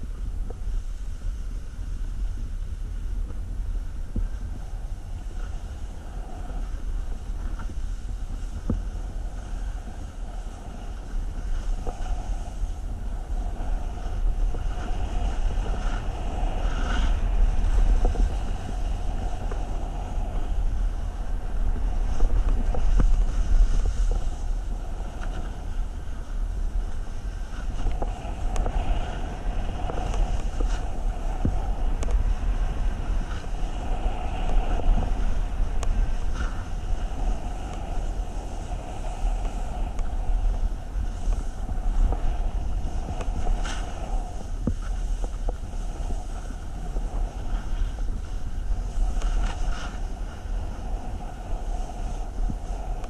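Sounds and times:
wind buffeting microphone: 0:00.0 - 0:53.0
skis scraping on packed snow: 0:04.3 - 0:53.0.

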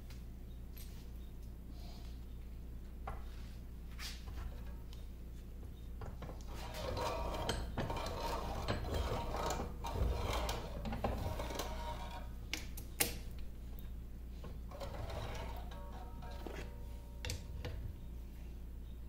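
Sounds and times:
metal parts grinding and clicking: 0:06.5 - 0:12.3, 0:14.7 - 0:16.6.

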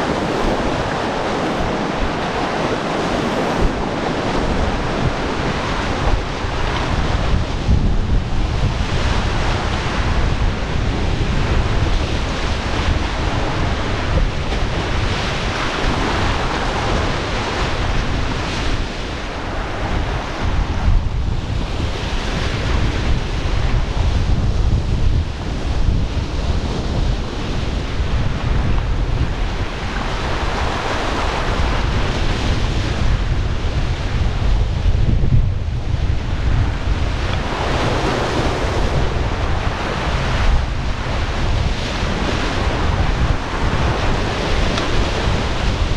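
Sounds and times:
whitewater rushing: 0:00.0 - 0:21.0, 0:35.8 - 0:45.9
wind buffeting microphone: 0:00.0 - 0:45.9.

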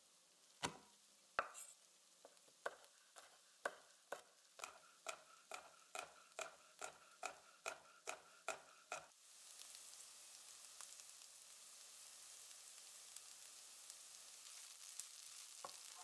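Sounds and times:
knife chopping on cutting board: 0:00.6 - 0:00.8, 0:01.4 - 0:01.7, 0:02.6 - 0:09.1
onions sizzling in oil: 0:01.0 - 0:16.0.

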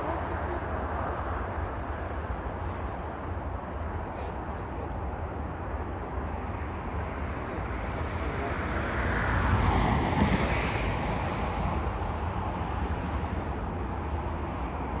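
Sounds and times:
wind rumble on microphone: 0:00.0 - 0:15.0
vehicle passing on road: 0:05.1 - 0:15.0.

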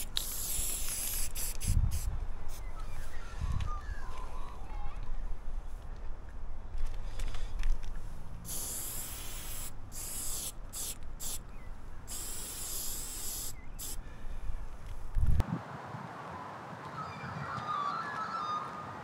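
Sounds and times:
spray paint can spraying: 0:00.0 - 0:02.6, 0:08.5 - 0:11.4, 0:12.1 - 0:14.0.

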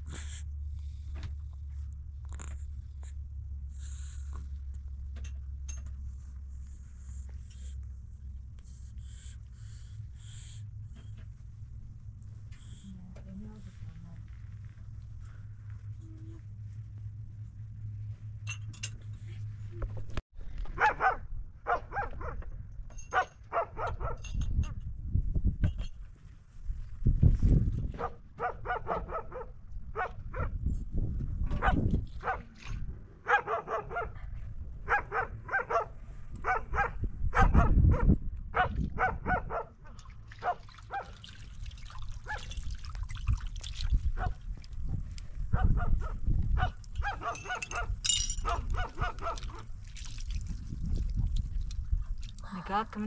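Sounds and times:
steady low rumble: 0:00.0 - 0:53.0
dog barking: 0:20.8 - 0:22.4, 0:23.1 - 0:24.3, 0:27.9 - 0:30.6, 0:31.5 - 0:32.5, 0:33.2 - 0:39.8, 0:40.4 - 0:41.2, 0:45.5 - 0:49.6.

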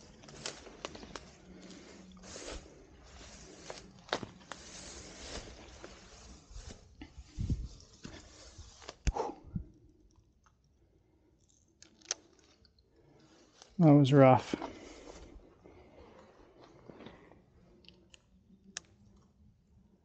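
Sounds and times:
leaves and twigs rustling: 0:00.0 - 0:09.0.

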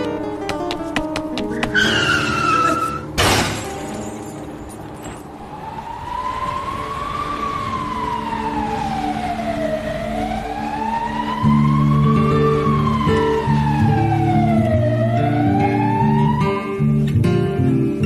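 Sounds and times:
tyres screeching: 0:01.3 - 0:03.2
loud crash: 0:03.2 - 0:04.0
emergency siren wailing: 0:05.1 - 0:17.4.

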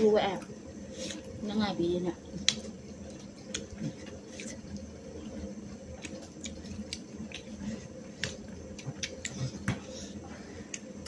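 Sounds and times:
low steady hum: 0:00.0 - 0:11.0
chewing: 0:02.4 - 0:09.8.

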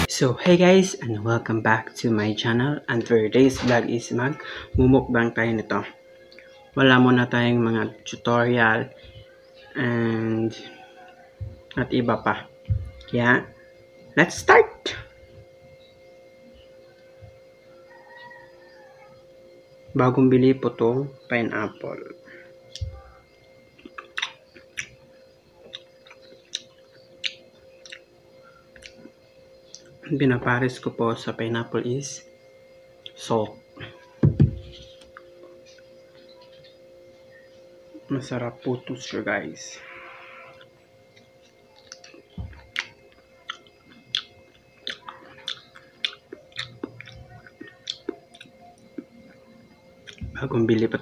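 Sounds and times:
crisp chewing crunches: 0:23.8 - 0:25.0, 0:40.5 - 0:49.1.

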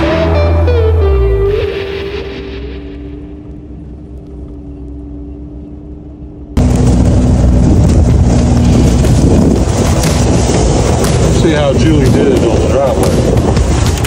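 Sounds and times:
engine whine: 0:00.0 - 0:14.0
heavy machine engine rumble: 0:00.0 - 0:14.0.

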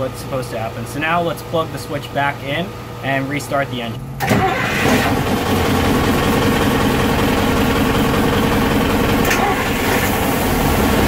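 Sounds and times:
marine diesel engines idling: 0:05.3 - 0:11.0.

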